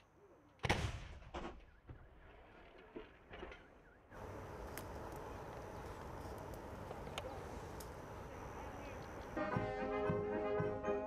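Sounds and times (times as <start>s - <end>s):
steady outdoor noise: 0.0s - 11.0s
rumble and echo of gunshot: 0.6s - 1.8s.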